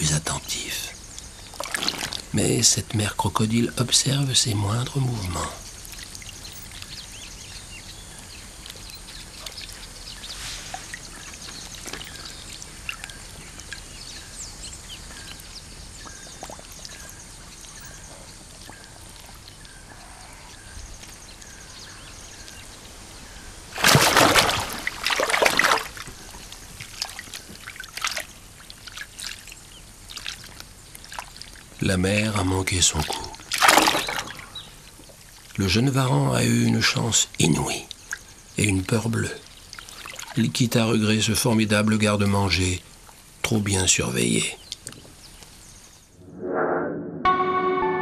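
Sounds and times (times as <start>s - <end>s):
water ambience: 0.0s - 46.5s
small splashes: 1.1s - 2.4s, 5.6s - 19.9s, 23.3s - 35.8s, 37.2s - 40.9s
faint regular chirp: 3.6s - 22.7s
loud splash: 23.7s - 26.0s, 33.5s - 34.4s.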